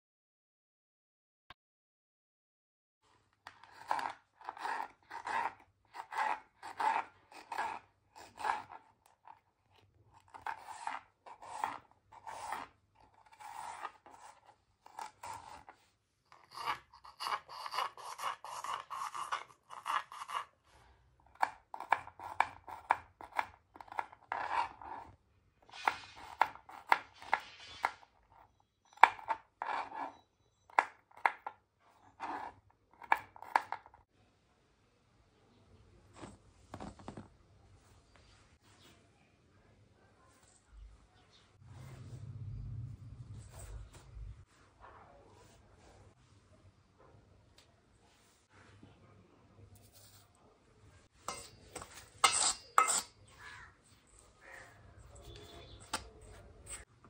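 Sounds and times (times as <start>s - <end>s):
knife chopping on plastic board: 21.3s - 25.0s.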